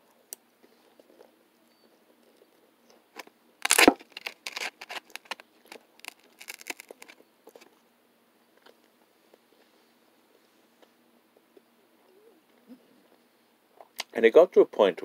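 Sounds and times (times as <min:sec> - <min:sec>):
fork crunching through toast: 0:03.2 - 0:07.8.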